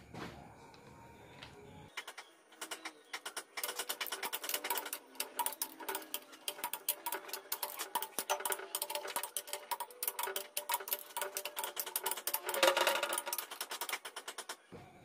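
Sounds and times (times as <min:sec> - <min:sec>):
ratchet wrench clicking: 0:03.2 - 0:14.6.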